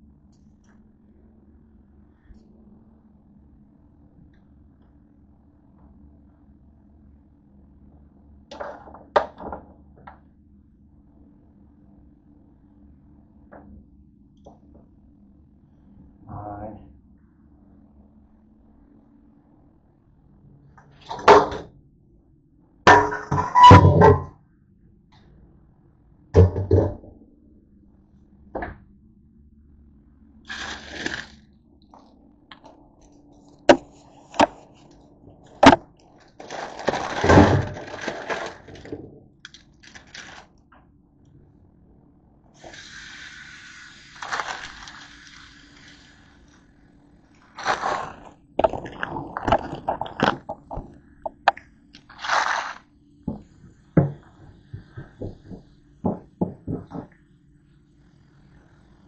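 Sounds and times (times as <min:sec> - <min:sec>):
tap water running: 0:42.6 - 0:46.2.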